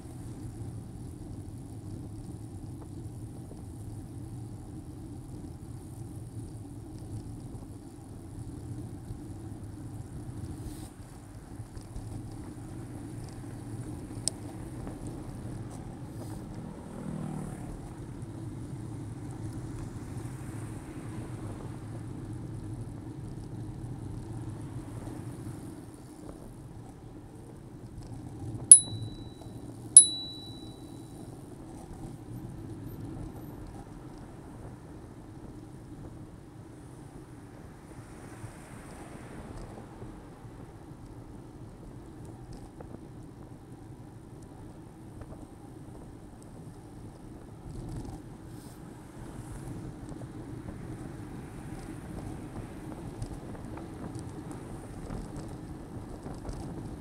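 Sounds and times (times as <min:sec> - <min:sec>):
bicycle tyre rumble: 0:00.0 - 0:28.6
wind: 0:00.0 - 0:57.0
bicycle bell ringing: 0:28.7 - 0:31.0.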